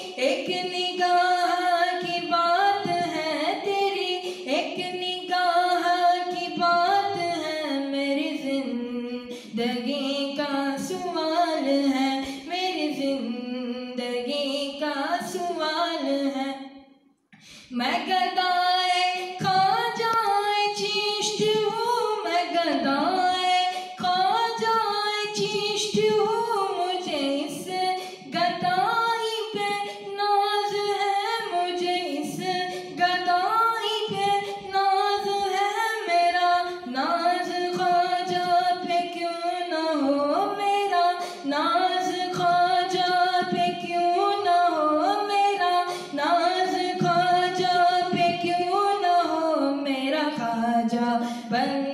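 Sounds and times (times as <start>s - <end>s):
singer breathing: 12.2s - 12.5s, 17.3s - 17.8s, 28.0s - 28.3s, 45.9s - 46.2s, 51.2s - 51.5s.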